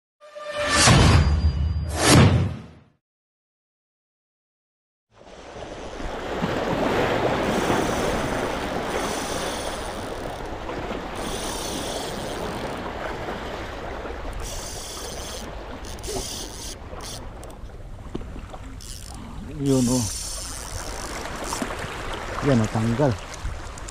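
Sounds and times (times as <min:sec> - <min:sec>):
waves splashing over rocks: 0:05.2 - 0:17.4, 0:18.0 - 0:23.9.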